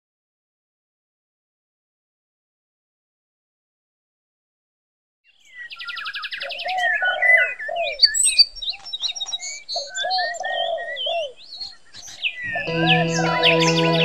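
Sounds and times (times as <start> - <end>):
birds chirping and trilling: 5.3 - 14.0
lower arching bird notes: 12.4 - 14.0.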